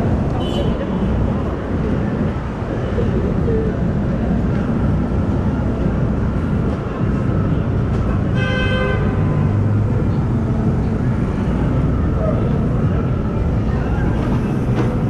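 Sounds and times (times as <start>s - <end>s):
city street traffic rumble: 0.0s - 15.0s
vehicle horn honking: 0.4s - 1.0s.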